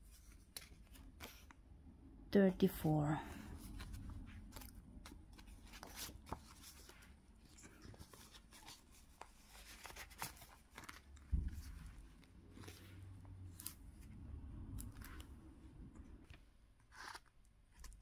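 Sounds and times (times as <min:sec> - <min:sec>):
plastic pages rustling and clicking: 0:00.0 - 0:01.6, 0:03.6 - 0:14.1, 0:14.8 - 0:15.4, 0:16.2 - 0:18.0
soft thump: 0:11.3 - 0:11.9.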